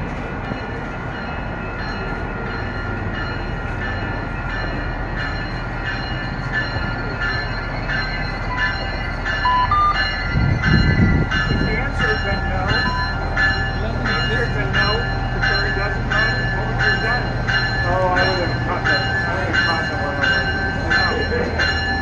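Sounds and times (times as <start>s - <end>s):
train engine and wheels rumbling: 0.0s - 22.0s.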